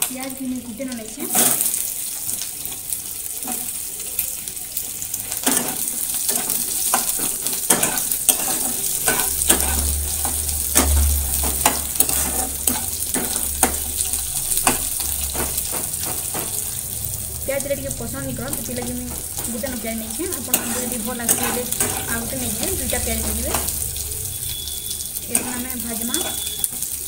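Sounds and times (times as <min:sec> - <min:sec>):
onions sizzling in oil: 0:00.0 - 0:27.0
metal spatula scraping a wok: 0:05.4 - 0:16.8, 0:18.5 - 0:23.9, 0:25.2 - 0:26.6.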